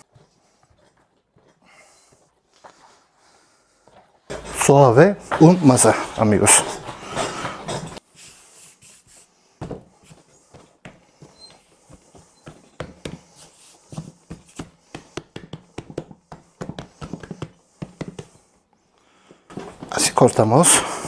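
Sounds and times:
hands kneading and slapping dough: 0:11.8 - 0:18.6.

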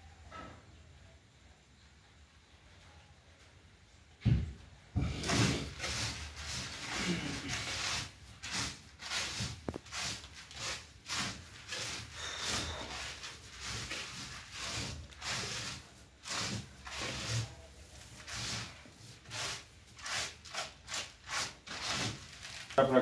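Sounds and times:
hands rubbing rice seed on sack: 0:05.0 - 0:23.0.

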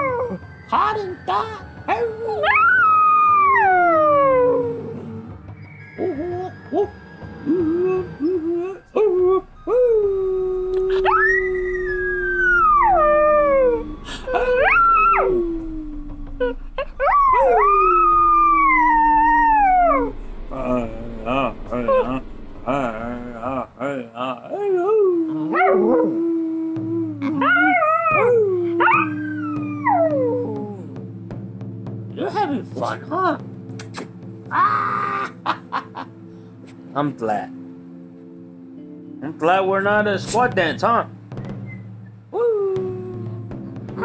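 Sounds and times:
dog howling: 0:01.9 - 0:05.3, 0:06.0 - 0:30.9
low steady howling tone: 0:03.6 - 0:30.9
steady low hum: 0:07.5 - 0:24.5.

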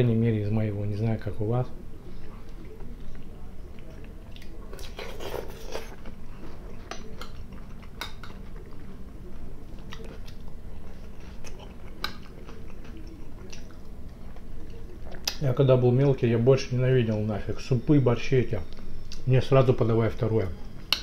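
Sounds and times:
chewing and mouth sounds: 0:02.2 - 0:15.4.

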